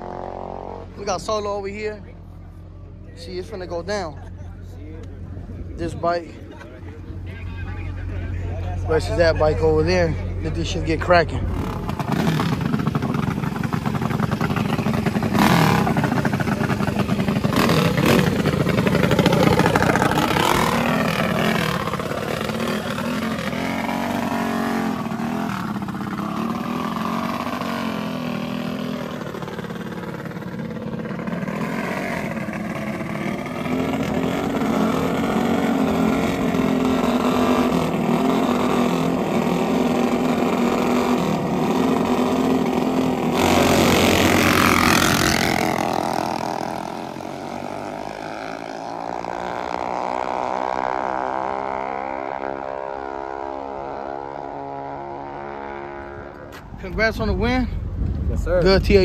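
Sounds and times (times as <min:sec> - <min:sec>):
minibike engines revving: 0:03.2 - 0:56.5.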